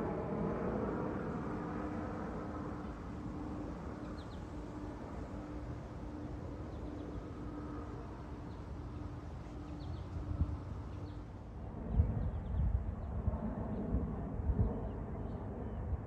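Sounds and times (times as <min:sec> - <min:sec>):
faint droning hum: 0:00.0 - 0:16.0.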